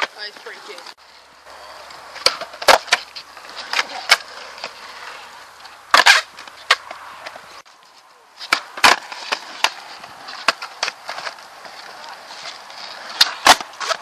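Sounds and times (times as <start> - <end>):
skateboard wheels rolling on concrete: 0.0 - 14.0
skateboard clacking on landing: 2.2 - 5.2, 8.4 - 12.3, 13.0 - 14.0.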